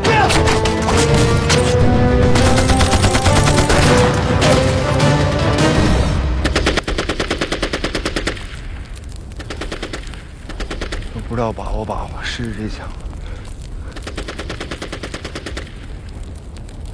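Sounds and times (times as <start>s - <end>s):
dramatic music: 0.0s - 6.9s
rapid machine-gun fire: 2.2s - 4.7s, 6.4s - 8.4s, 14.0s - 15.7s.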